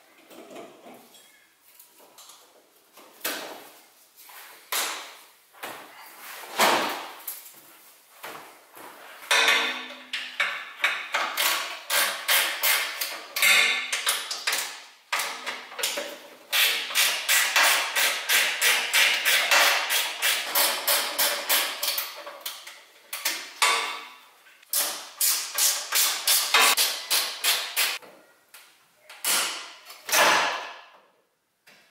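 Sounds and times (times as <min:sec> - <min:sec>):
rapid clicking and knocking of tools: 0:09.3 - 0:24.0, 0:24.7 - 0:28.0.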